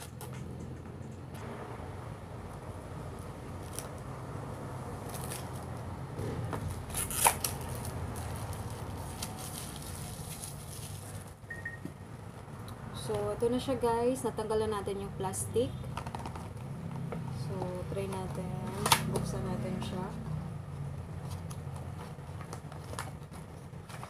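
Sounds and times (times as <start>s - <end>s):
plastic crackle: 6.7s - 11.4s
plastic wrap peeling and tearing: 6.7s - 11.4s.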